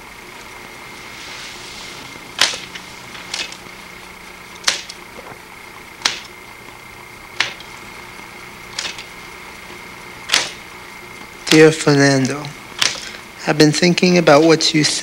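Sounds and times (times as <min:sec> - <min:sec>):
paper rustling: 0:00.4 - 0:05.0.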